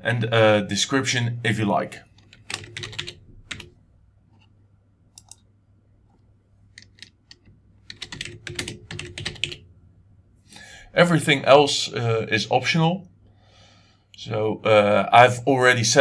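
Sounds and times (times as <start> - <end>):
typing on computer keyboard: 2.2 - 3.7, 6.7 - 9.6.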